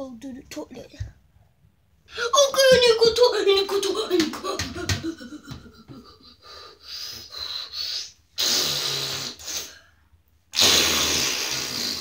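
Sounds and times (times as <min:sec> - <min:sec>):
hissing breath: 0:06.4 - 0:10.0
person snorting mouth noises: 0:07.8 - 0:09.8, 0:10.5 - 0:12.0.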